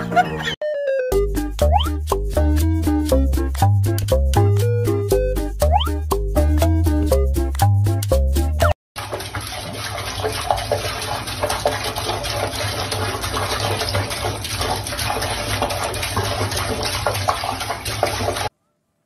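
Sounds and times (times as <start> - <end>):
water running from faucet into sink: 9.0 - 18.5.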